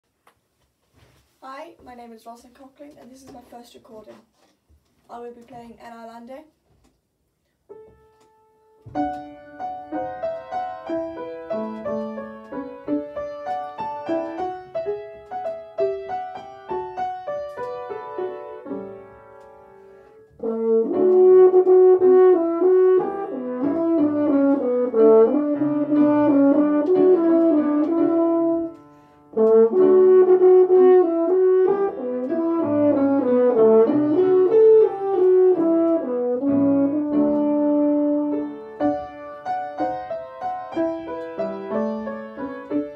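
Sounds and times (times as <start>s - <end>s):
piano notes and chords: 7.6s - 42.9s
french horn melody: 17.9s - 38.8s.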